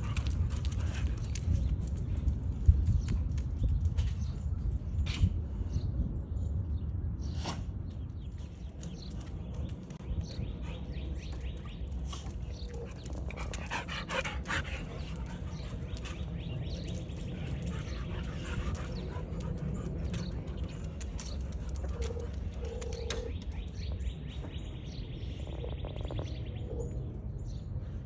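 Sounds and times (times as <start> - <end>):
steady low rumble: 0.0 - 28.0
dog panting: 12.6 - 22.3.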